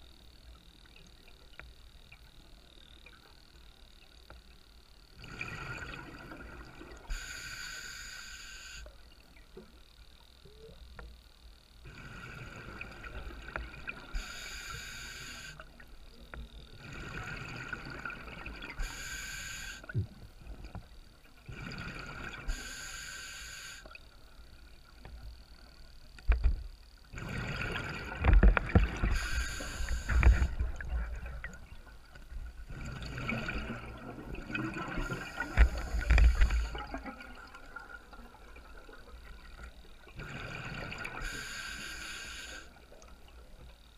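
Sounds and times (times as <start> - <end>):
diver breathing through regulator: 7.1 - 8.9, 14.1 - 15.6, 18.8 - 19.9, 21.5 - 24.0, 27.2 - 30.8, 34.8 - 37.0, 40.2 - 42.8.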